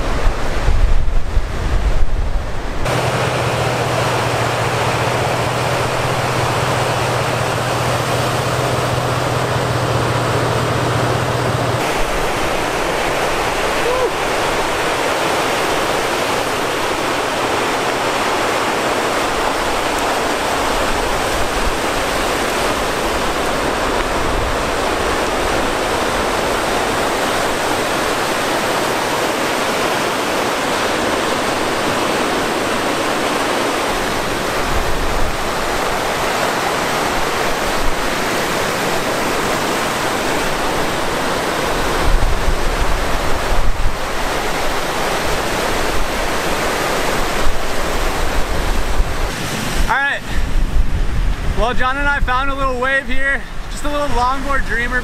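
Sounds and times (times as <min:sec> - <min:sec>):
gusts buffeting microphone: 0:00.0 - 0:55.0
lake surf: 0:00.0 - 0:55.0
rushing wind: 0:00.0 - 0:55.0.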